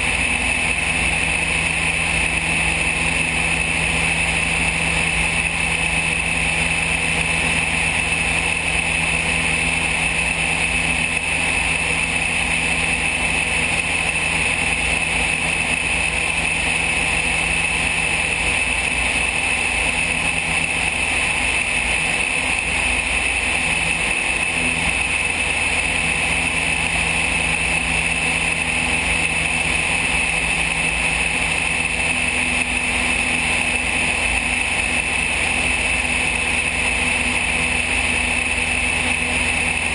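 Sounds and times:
light aircraft engine drone: 0:00.0 - 0:39.9.

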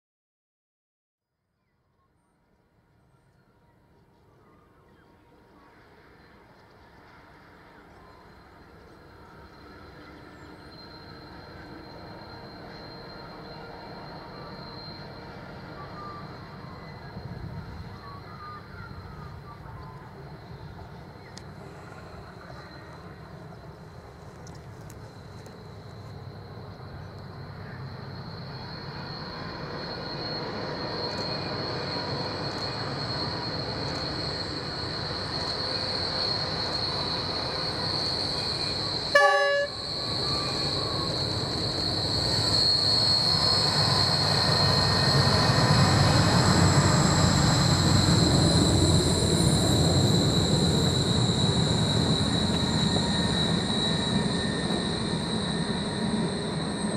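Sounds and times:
diesel locomotive engine rumble: 0:02.8 - 0:56.9
wheel squeal: 0:09.2 - 0:56.9
train horn blast: 0:39.1 - 0:39.9.

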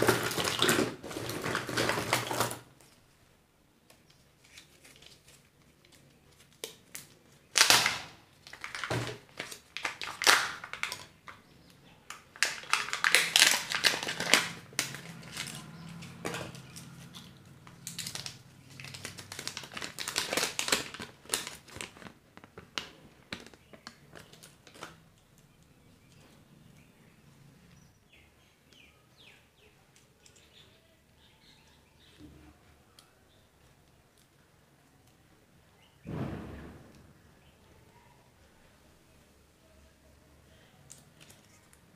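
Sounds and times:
plastic and foil wrappers crinkling: 0:00.0 - 0:03.0, 0:04.1 - 0:26.3, 0:40.5 - 0:41.9.

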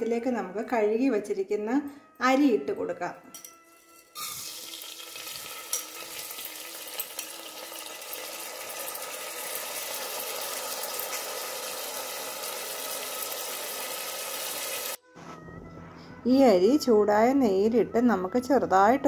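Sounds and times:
rice sizzling in hot fat: 0:04.2 - 0:15.0.

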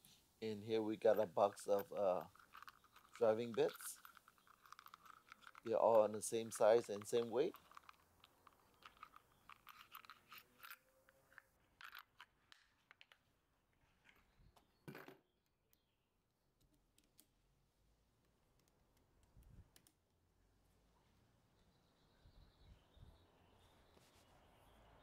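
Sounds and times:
metal driver bits clicking: 0:01.0 - 0:10.8.

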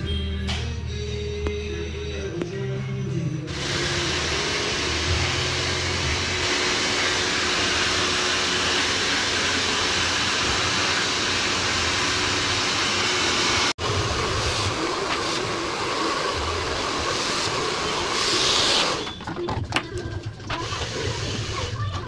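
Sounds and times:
hair dryer blowing air: 0:03.5 - 0:19.2, 0:20.6 - 0:21.8.

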